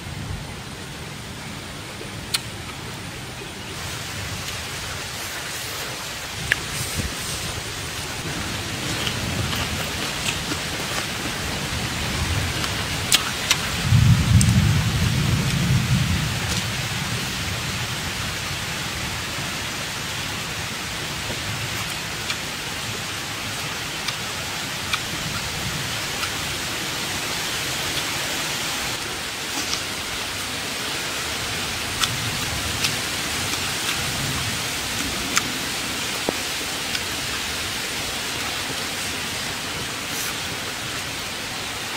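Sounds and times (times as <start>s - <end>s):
stream rushing over rocks: 1.2s - 13.9s, 16.5s - 41.9s
low rumble: 13.8s - 19.6s.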